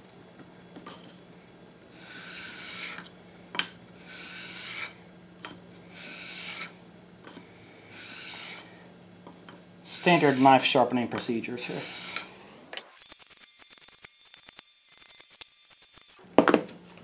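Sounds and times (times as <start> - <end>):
blade rasping on sandpaper: 1.9 - 3.1, 4.0 - 5.0, 5.9 - 6.8, 7.9 - 8.7, 9.9 - 10.8, 11.5 - 12.4.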